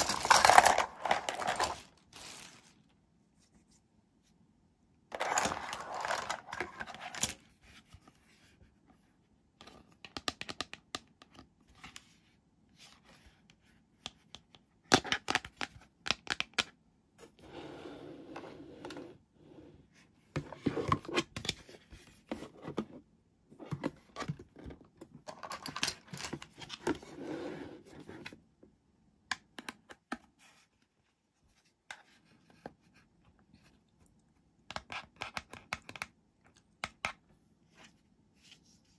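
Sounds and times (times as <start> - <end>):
plastic pieces scraping and rustling: 0.0 - 3.0, 5.1 - 7.4, 23.8 - 27.3.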